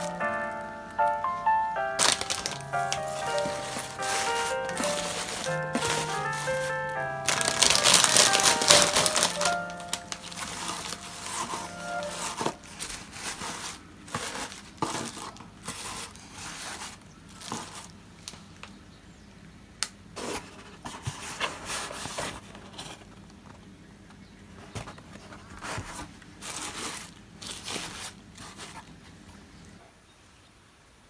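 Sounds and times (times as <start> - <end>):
packing fill rustling: 0.0 - 18.4, 25.3 - 28.8.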